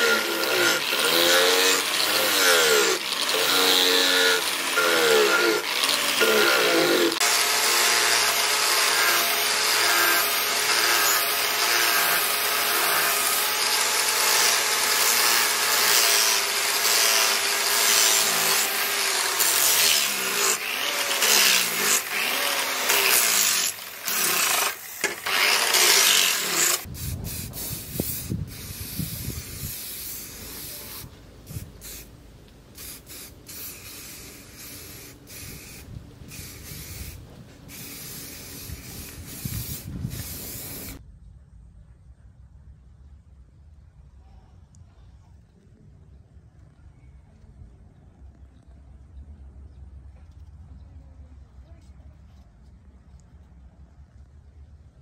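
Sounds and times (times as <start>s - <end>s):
angle grinder grinding steel: 0.0s - 26.9s
aerosol spray can hissing: 26.8s - 32.1s, 32.8s - 41.0s.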